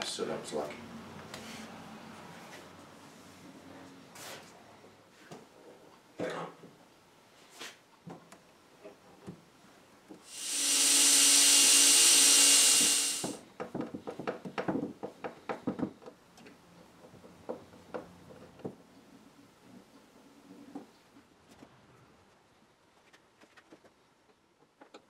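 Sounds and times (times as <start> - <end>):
cordless drill running: 10.3 - 13.4.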